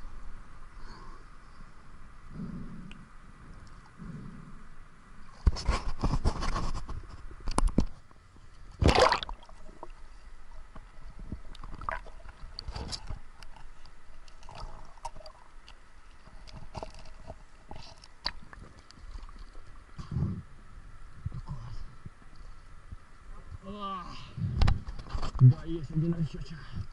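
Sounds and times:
faint underwater hiss: 0.0 - 5.5
loud water splash: 8.8 - 9.5.

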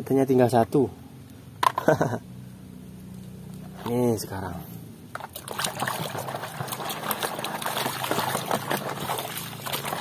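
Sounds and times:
water sloshing in metal basin: 5.1 - 10.0.

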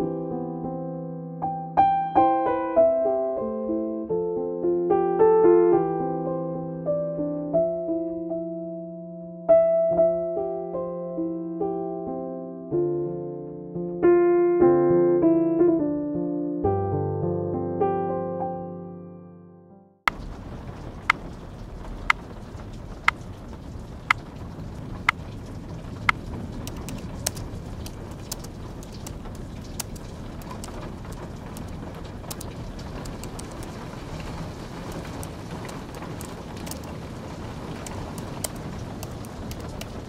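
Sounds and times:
steady rain hiss: 20.1 - 40.0
typing on a keyboard: 26.0 - 33.8.

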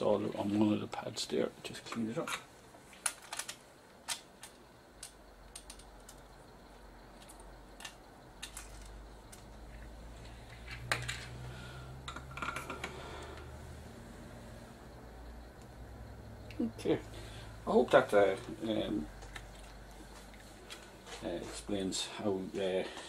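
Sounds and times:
low hum: 4.4 - 21.7.

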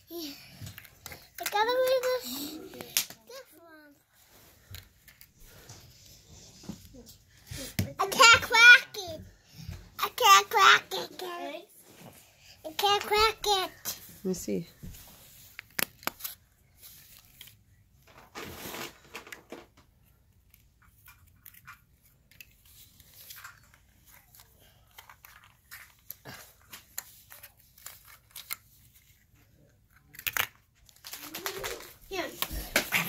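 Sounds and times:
plastic eggs clicking and rustling: 0.2 - 3.6, 18.0 - 33.0.

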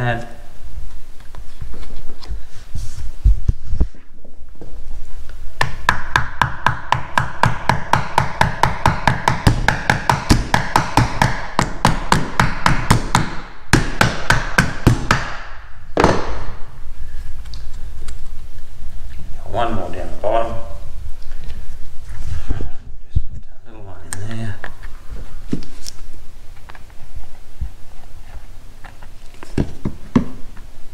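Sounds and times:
hammer tapping wood: 5.6 - 16.4.

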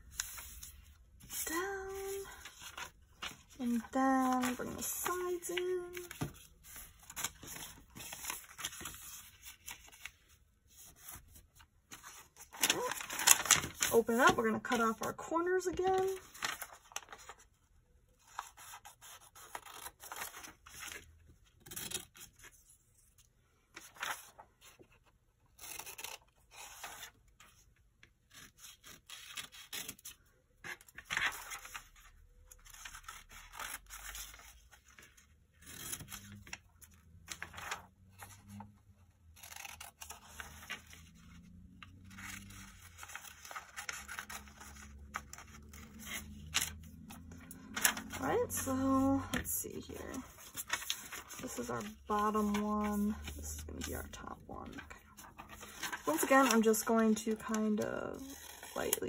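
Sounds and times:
paper rustling and creasing: 0.0 - 59.0
scissors snipping paper: 39.4 - 41.0.

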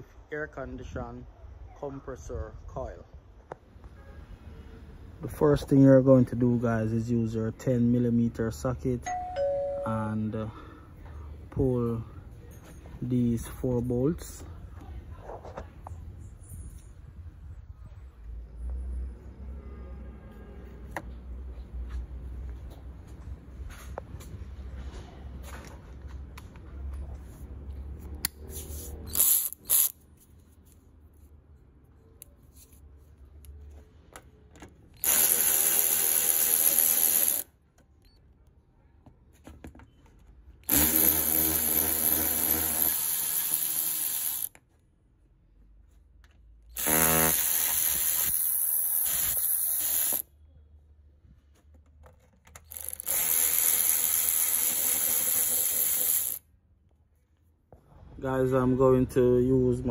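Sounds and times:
cordless electric ratchet spinning: 29.1 - 30.0, 35.0 - 37.5, 40.6 - 44.6, 46.8 - 50.3, 52.6 - 56.4.

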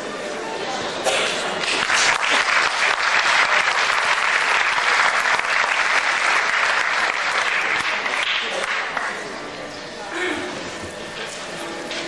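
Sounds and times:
audience applauding: 1.6 - 9.3.

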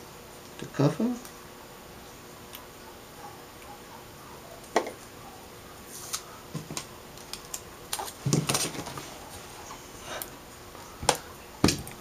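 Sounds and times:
aluminum foil crinkling: 5.9 - 9.5.

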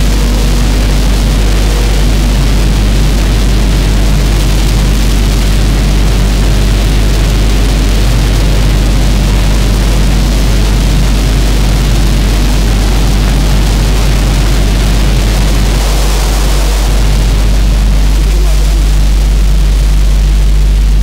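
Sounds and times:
harsh electronic hiss: 0.0 - 21.0
steady deep hum: 0.0 - 21.0.

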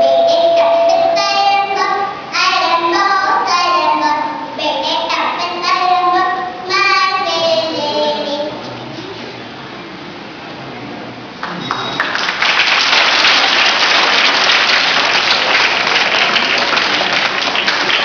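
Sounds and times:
girl singing into microphone: 0.0 - 8.7.

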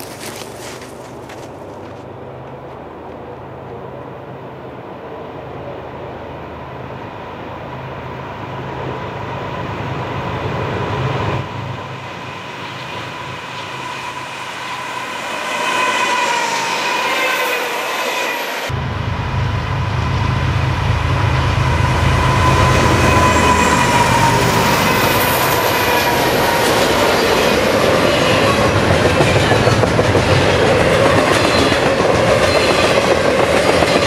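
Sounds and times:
diesel locomotive engines: 0.0 - 34.0
wavering high whining tones: 11.5 - 28.7.

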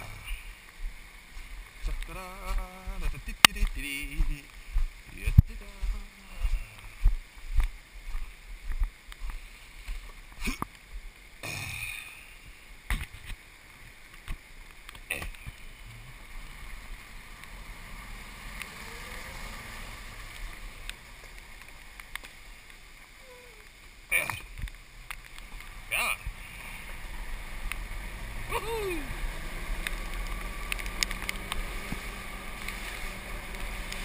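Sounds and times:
golf cart running hum: 15.7 - 22.8, 24.8 - 34.0.

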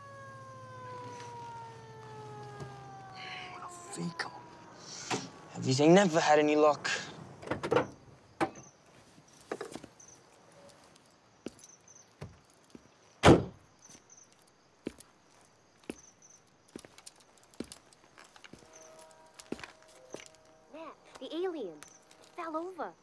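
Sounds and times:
faint crickets chirping: 0.0 - 23.0
loud thunk: 13.2 - 13.6.

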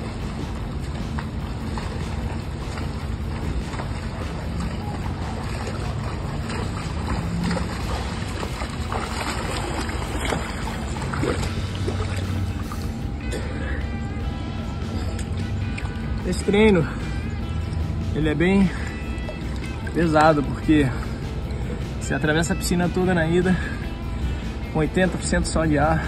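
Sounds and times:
swimmer splashing in pool: 0.0 - 13.3.

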